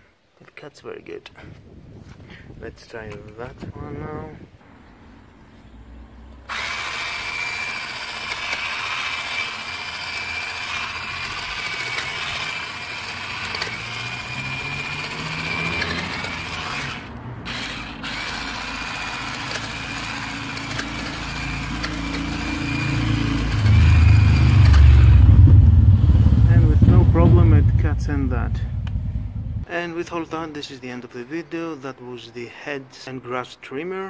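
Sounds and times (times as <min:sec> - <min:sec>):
hedge trimmer buzzing: 0:06.4 - 0:25.3
low rumble: 0:23.3 - 0:29.7.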